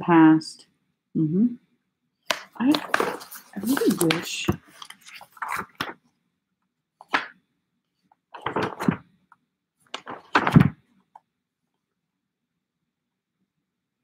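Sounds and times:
magazine pages turning: 2.3s - 6.1s, 7.0s - 7.4s, 8.4s - 9.2s, 9.9s - 10.8s.

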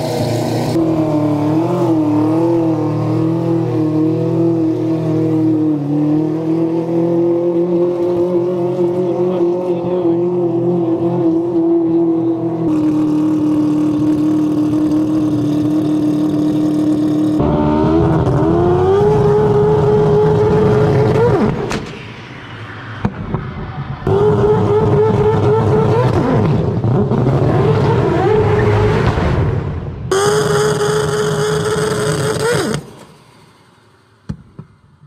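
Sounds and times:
rotary engine running hard: 0.0s - 21.7s.

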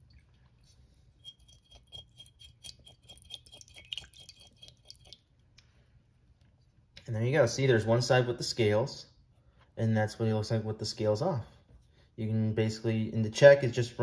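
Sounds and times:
metal spoon scraping fish scales: 1.1s - 5.1s.

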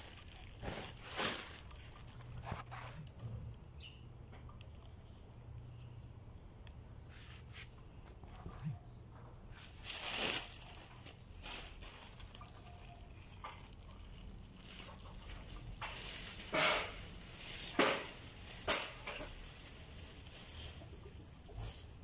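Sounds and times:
short rustling noises: 0.0s - 3.2s
faint outdoor background: 0.0s - 22.0s.

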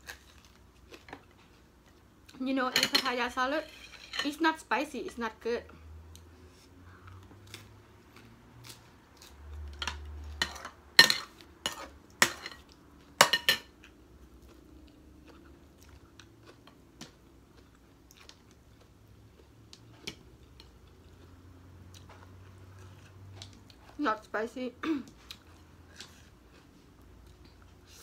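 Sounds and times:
plates and cutlery clinking: 9.8s - 13.7s
chewing: 13.8s - 24.0s, 25.1s - 28.0s.

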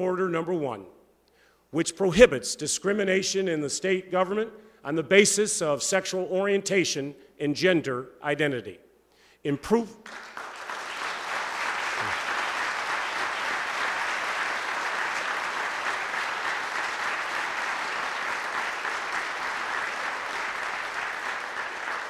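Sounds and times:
audience applauding: 10.0s - 22.0s.

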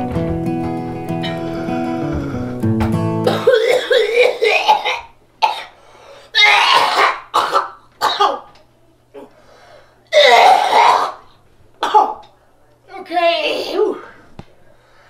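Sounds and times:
man coughing hard: 3.2s - 5.8s, 6.4s - 8.5s, 10.1s - 11.2s, 11.8s - 12.2s.

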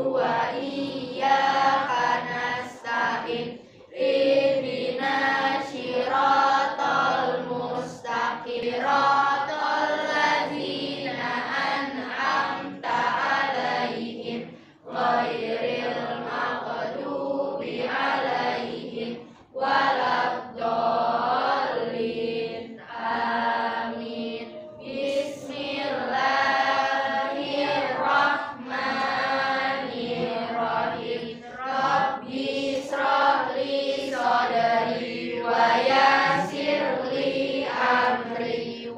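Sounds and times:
children chanting in unison: 0.0s - 38.9s.

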